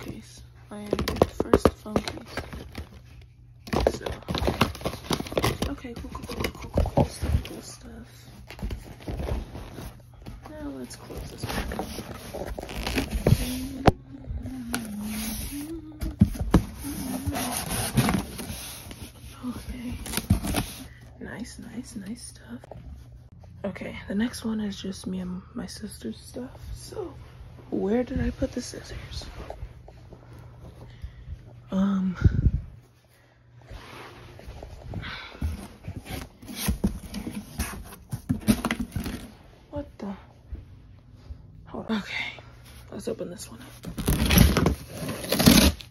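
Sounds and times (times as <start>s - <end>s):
cardboard rubbing and scraping: 8.6s - 14.0s, 14.9s - 20.9s, 43.8s - 45.9s.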